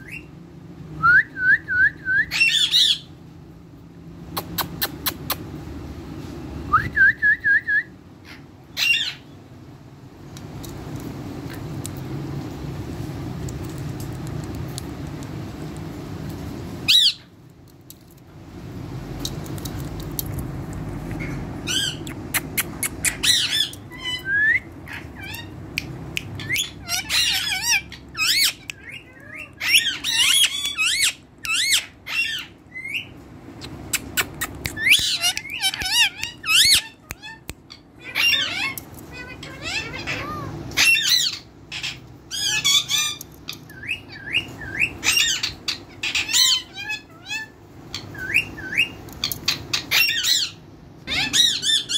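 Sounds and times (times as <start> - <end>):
parakeets squawking and chirping: 0.0 - 0.3, 2.3 - 3.2, 8.2 - 9.4, 16.3 - 17.4, 19.4 - 51.9.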